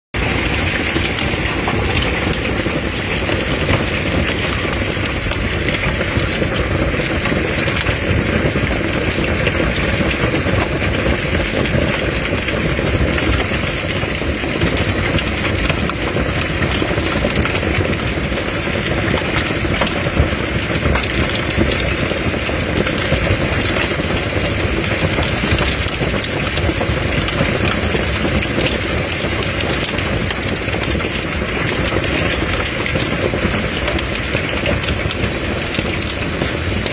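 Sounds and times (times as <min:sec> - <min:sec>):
heavy rain: 0:00.1 - 0:36.9
hailstones pelting down: 0:00.2 - 0:36.9.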